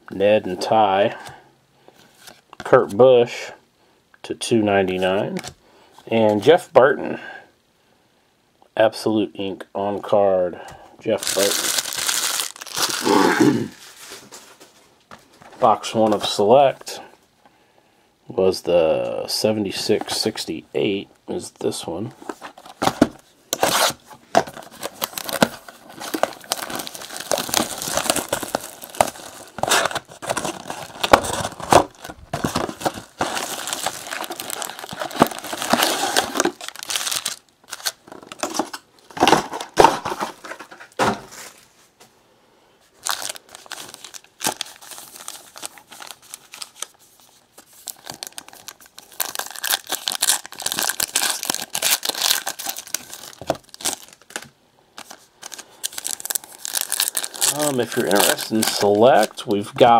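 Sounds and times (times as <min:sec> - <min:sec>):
foil packs crinkling: 0:11.1 - 0:14.6, 0:22.3 - 0:41.6, 0:43.0 - 0:59.9
cardboard box tearing: 0:22.8 - 0:37.9.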